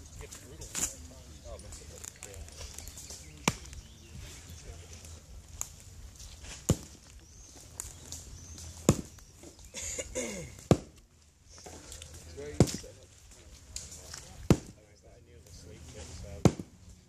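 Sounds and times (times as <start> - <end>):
knife chopping wood: 3.4 - 3.8, 6.5 - 7.0, 8.7 - 9.5, 10.6 - 11.0, 12.6 - 12.8, 14.4 - 14.8, 16.4 - 16.7.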